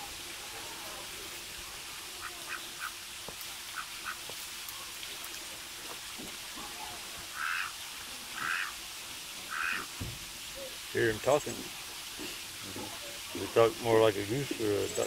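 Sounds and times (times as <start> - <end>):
duck calling: 7.3 - 7.7, 8.4 - 8.7, 9.5 - 9.9.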